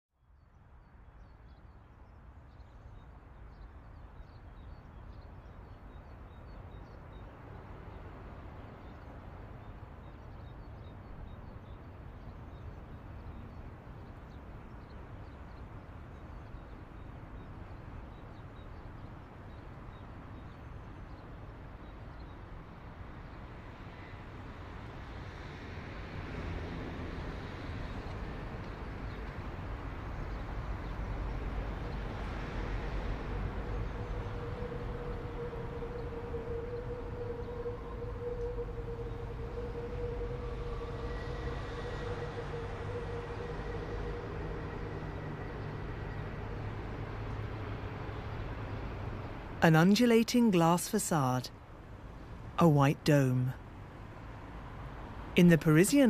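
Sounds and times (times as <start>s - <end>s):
traffic rumble: 23.7s - 56.0s.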